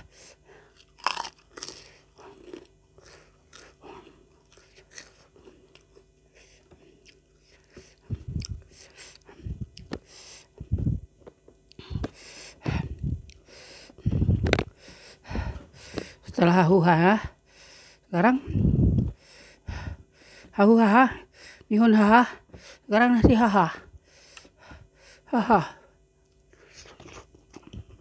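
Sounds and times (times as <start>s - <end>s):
chewing and crunching: 0.0s - 10.6s, 26.2s - 28.0s
low thumps: 10.6s - 11.1s.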